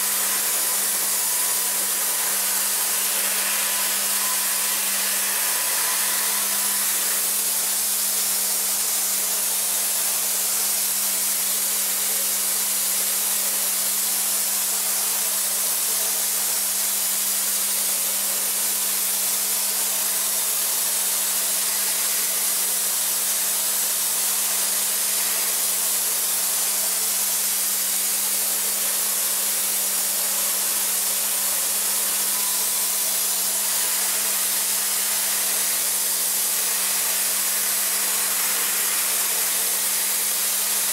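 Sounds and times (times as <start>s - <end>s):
milling machine hissing: 0.0s - 40.9s.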